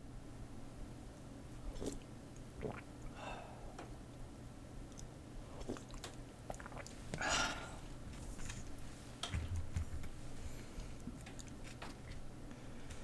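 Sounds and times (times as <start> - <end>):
person slurping: 1.7 - 2.0, 2.6 - 2.9, 5.5 - 7.8
person chewing: 4.9 - 7.2.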